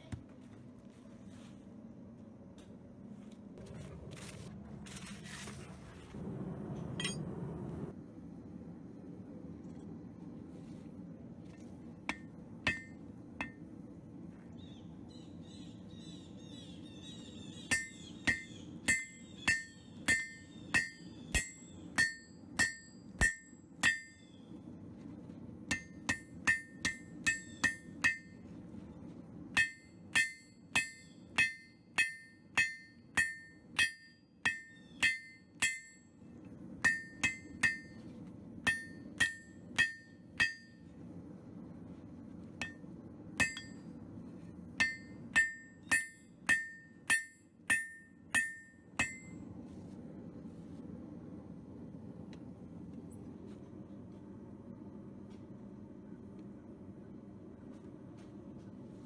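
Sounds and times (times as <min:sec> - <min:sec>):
steady low hum: 0:00.0 - 0:59.0
hammer ringing on anvil: 0:07.0 - 0:07.3, 0:12.1 - 0:13.6, 0:17.7 - 0:24.4, 0:25.7 - 0:28.4, 0:29.6 - 0:36.2, 0:36.8 - 0:40.9, 0:42.6 - 0:42.8, 0:43.4 - 0:43.9, 0:44.8 - 0:49.4.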